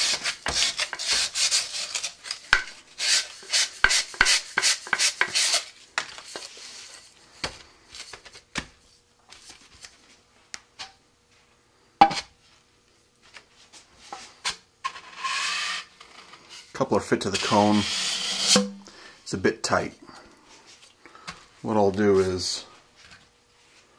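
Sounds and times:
abrasive pad scuffing tube: 0.0s - 8.2s, 17.3s - 18.8s.

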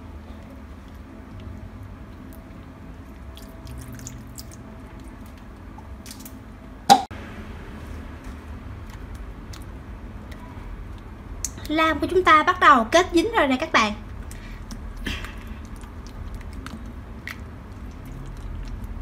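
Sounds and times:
wet slime squelching: 0.4s - 6.4s, 8.2s - 11.8s, 13.6s - 19.0s.

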